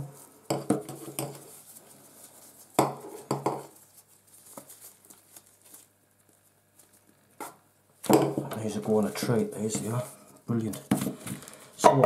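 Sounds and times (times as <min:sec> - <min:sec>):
rustles: 0:00.0 - 0:07.6.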